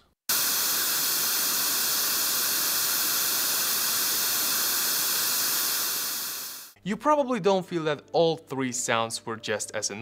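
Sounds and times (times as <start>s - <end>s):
white noise hiss: 0.3s - 6.8s.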